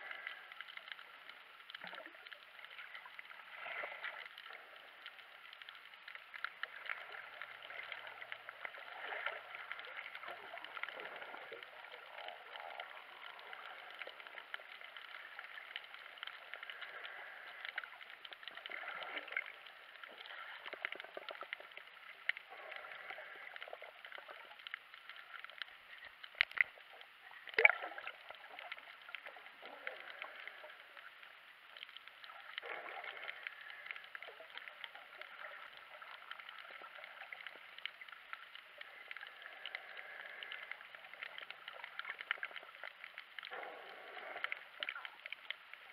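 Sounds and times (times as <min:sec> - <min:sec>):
underwater water and bubbles: 0:00.0 - 0:45.9.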